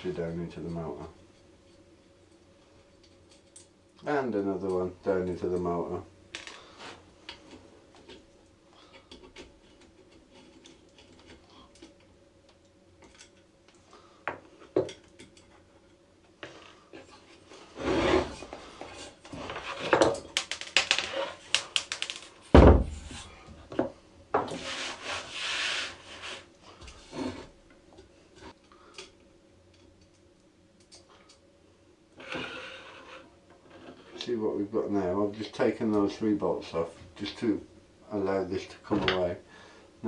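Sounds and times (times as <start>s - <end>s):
metal scraping on wooden bench: 17.5s - 20.1s, 32.2s - 34.2s.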